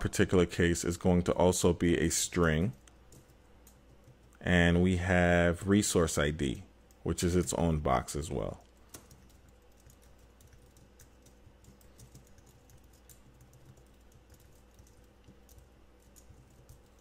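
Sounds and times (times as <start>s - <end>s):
keyboard typing: 2.4s - 4.5s, 8.4s - 17.0s.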